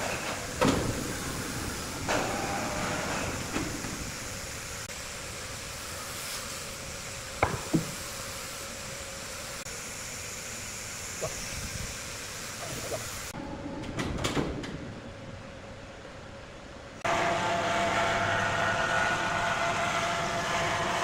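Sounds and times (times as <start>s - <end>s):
sawmill machinery humming: 0.0s - 13.4s, 17.1s - 21.0s
sharp knocks: 7.4s - 8.0s.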